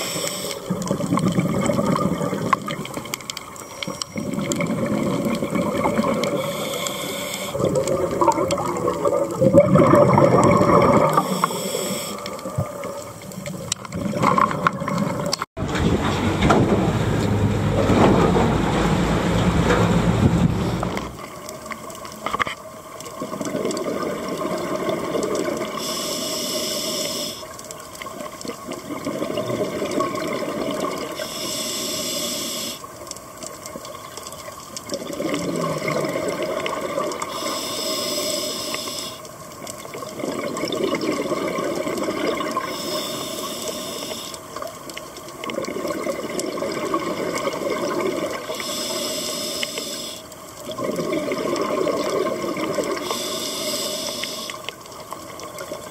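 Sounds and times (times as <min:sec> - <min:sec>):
regulator hiss on inhale: 0:00.0 - 0:00.7, 0:06.2 - 0:07.6, 0:11.1 - 0:12.4, 0:25.7 - 0:27.6, 0:31.1 - 0:32.9, 0:37.2 - 0:39.4, 0:42.6 - 0:44.6, 0:48.4 - 0:50.4, 0:52.9 - 0:54.8
bubbling exhaust: 0:07.5 - 0:11.4.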